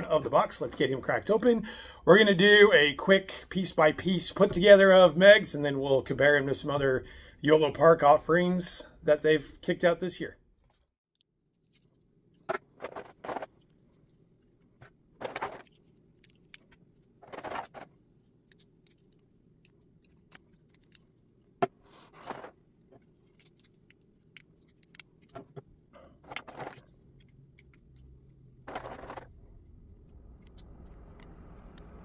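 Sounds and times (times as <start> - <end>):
faint low hum: 11.7 - 32.0.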